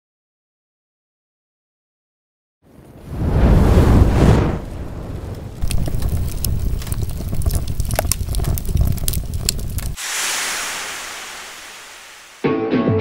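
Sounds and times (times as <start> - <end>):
wind buffeting microphone: 3.0 - 10.0
hiss: 10.0 - 12.4
guitar music: 12.4 - 13.0.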